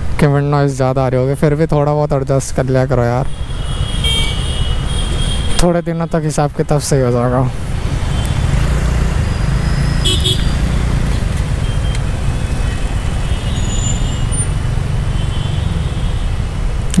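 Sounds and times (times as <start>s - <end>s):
slow city traffic rumble: 0.0s - 17.0s
vehicle horn tooting: 3.3s - 5.6s, 10.0s - 10.6s, 12.8s - 14.3s.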